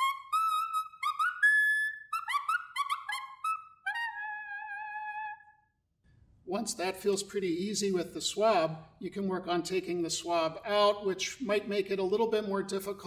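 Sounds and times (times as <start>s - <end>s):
clarinet held wavering note: 0.0s - 5.7s.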